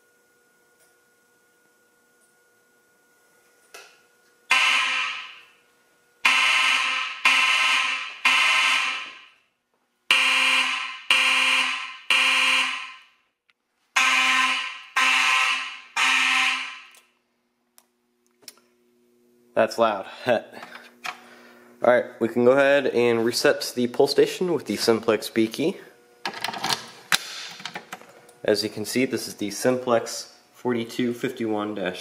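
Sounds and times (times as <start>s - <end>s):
fire alarm horns blasting: 4.5s - 5.6s, 6.2s - 9.5s, 10.1s - 13.2s, 13.9s - 17.1s.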